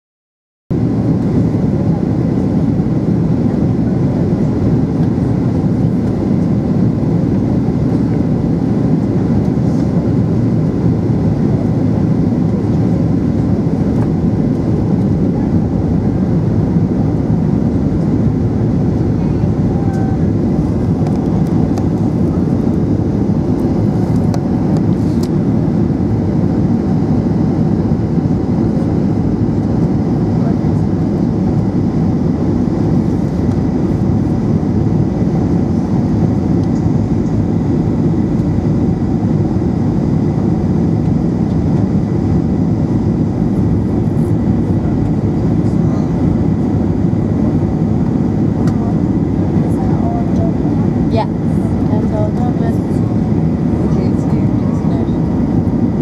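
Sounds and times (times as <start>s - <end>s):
airplane cabin engine rumble: 0.7s - 56.0s.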